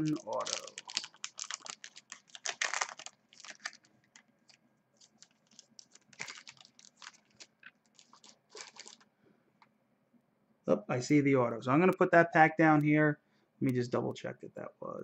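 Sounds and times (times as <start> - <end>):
foil wrapper crinkling: 0.0 - 9.1.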